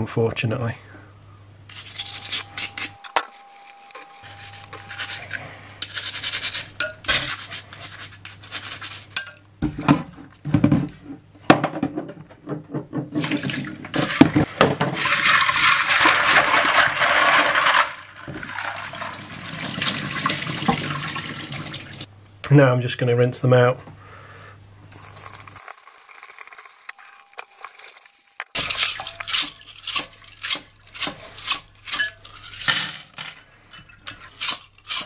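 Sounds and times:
brush scrubbing plastic keycaps: 1.7s - 9.2s, 24.9s - 30.6s
water sloshing and splashing: 13.1s - 22.1s, 28.6s - 31.4s.

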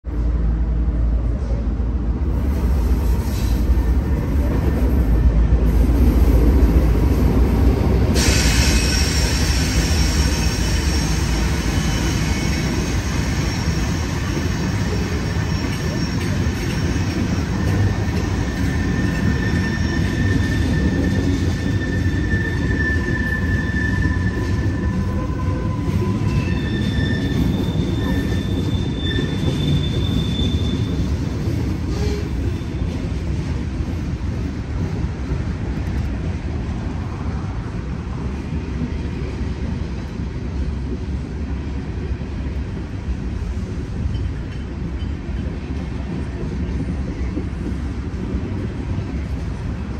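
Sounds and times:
train wheel squeal: 8.1s - 33.2s, 44.0s - 47.8s.

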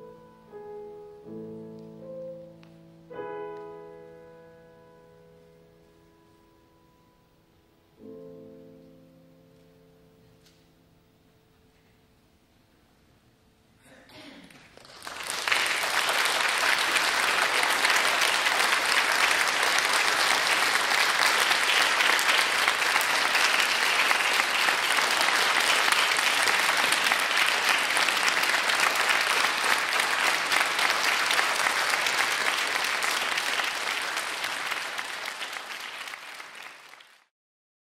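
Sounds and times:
audience applauding: 14.6s - 37.3s.

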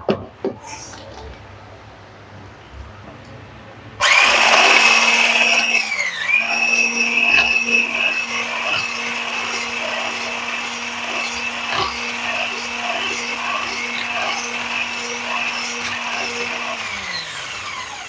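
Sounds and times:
electric hand blender whine: 4.0s - 18.0s.

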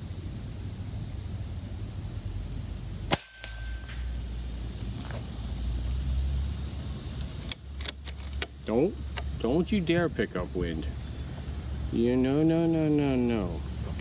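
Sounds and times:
air rifle shot: 3.1s - 4.3s.

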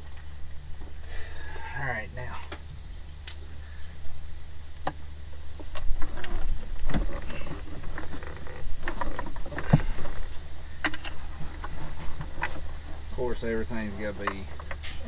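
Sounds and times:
steady low hum: 0.0s - 15.0s
dash parts knocking and rattling: 5.6s - 15.0s.

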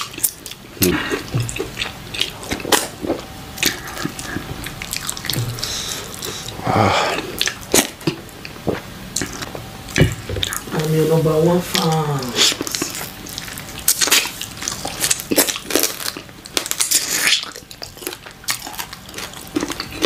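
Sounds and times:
lip smacks and chewing: 0.0s - 6.6s.

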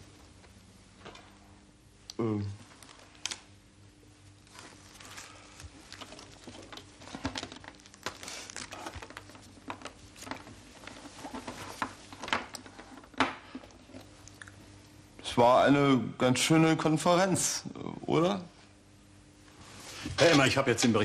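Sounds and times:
paper wrapper crinkling: 4.2s - 13.2s.

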